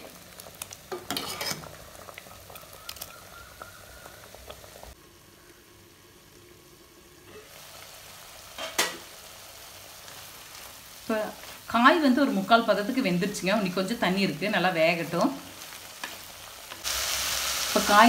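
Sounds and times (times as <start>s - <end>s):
thick stew bubbling: 0.0s - 8.4s.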